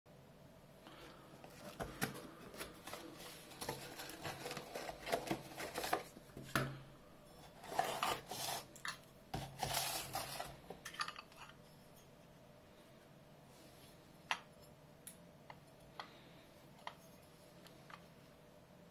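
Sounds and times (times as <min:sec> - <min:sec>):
cardboard and packing rustling: 0:01.4 - 0:06.6, 0:07.4 - 0:08.8, 0:09.4 - 0:10.8.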